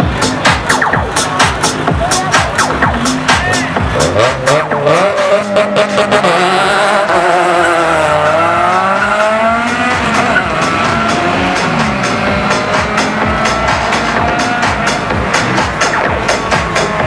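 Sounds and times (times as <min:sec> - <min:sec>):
car engine revving: 0:00.0 - 0:17.0
tyres squealing on concrete: 0:07.1 - 0:17.0.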